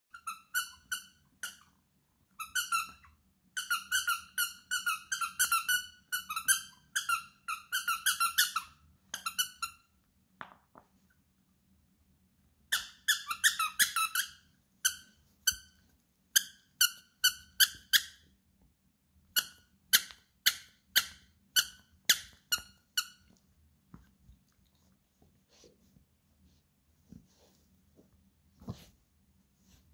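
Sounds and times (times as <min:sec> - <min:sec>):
squeaky toy squeaking: 0:00.1 - 0:09.9, 0:12.7 - 0:15.8, 0:16.4 - 0:18.3, 0:19.3 - 0:23.4.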